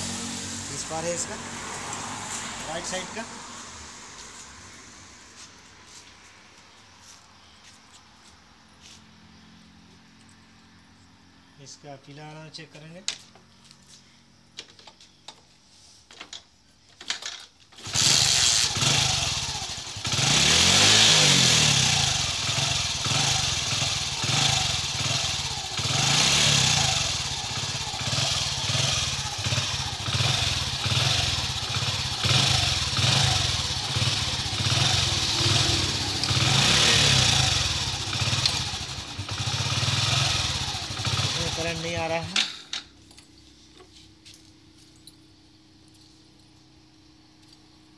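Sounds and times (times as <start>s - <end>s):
motorcycle engine revving: 0.0s - 4.4s, 17.8s - 42.7s.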